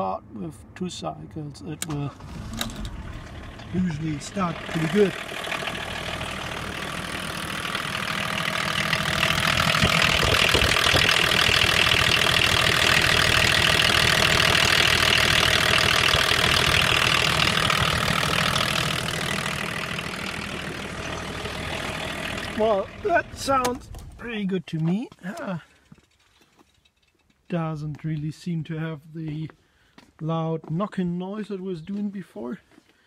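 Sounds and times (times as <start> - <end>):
diesel engine idling: 1.9 - 24.4.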